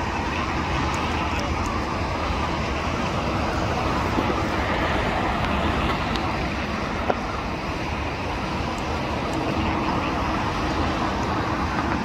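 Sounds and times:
jet engines roaring: 0:00.0 - 0:12.0
road traffic rumble: 0:00.0 - 0:12.0.

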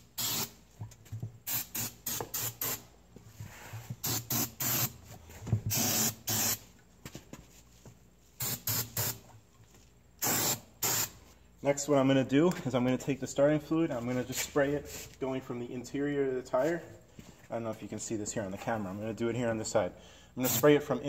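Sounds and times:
aerosol spray hissing bursts: 0:00.0 - 0:00.6, 0:01.5 - 0:02.8, 0:04.0 - 0:04.9, 0:05.7 - 0:06.6, 0:08.4 - 0:09.2, 0:10.2 - 0:11.2, 0:20.4 - 0:20.7.

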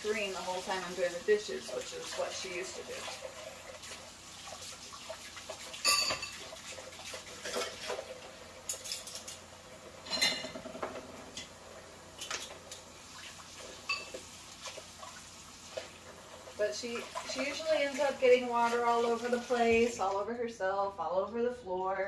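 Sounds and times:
dishes clinking in sink: 0:05.5 - 0:11.5, 0:13.7 - 0:14.3.

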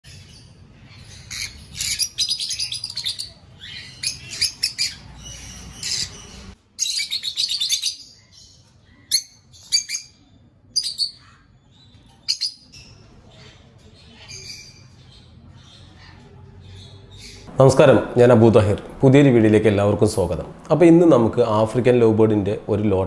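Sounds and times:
sharp bird calls: 0:00.1 - 0:17.6
lovebirds chattering: 0:00.1 - 0:17.8.

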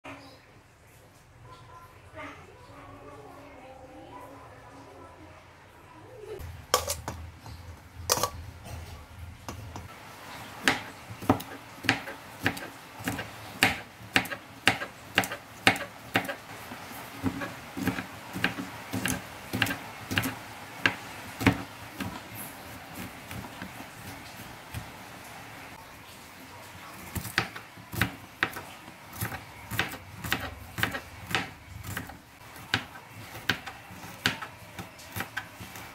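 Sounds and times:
knife chopping on cutting board: 0:10.6 - 0:16.4, 0:17.2 - 0:23.8, 0:27.2 - 0:35.9.

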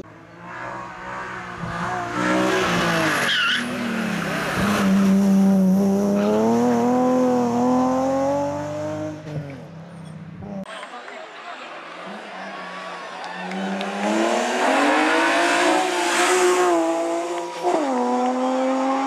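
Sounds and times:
car engine revving: 0:00.2 - 0:09.7, 0:13.4 - 0:19.0
tyre squeal: 0:03.2 - 0:03.8.

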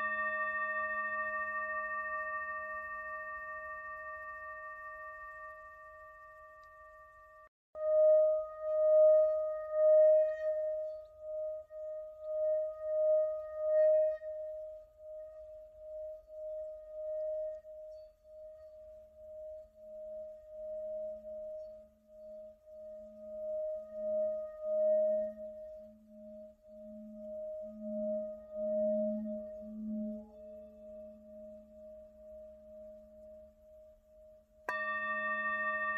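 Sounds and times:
singing bowl ringing tone: 0:00.0 - 0:35.9.

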